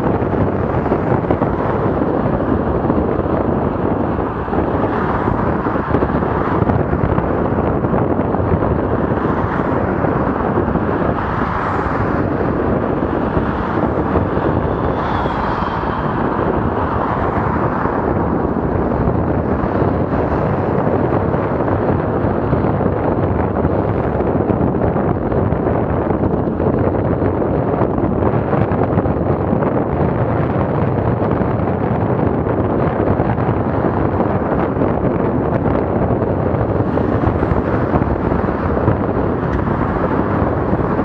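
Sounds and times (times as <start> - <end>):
bicycle road noise: 0.0 - 41.0
wind on microphone: 0.0 - 41.0.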